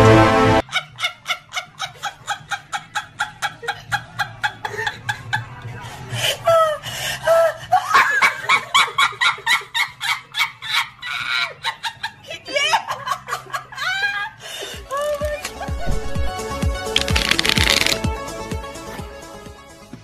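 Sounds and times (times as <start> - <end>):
woman laughing hard: 6.4 - 16.2.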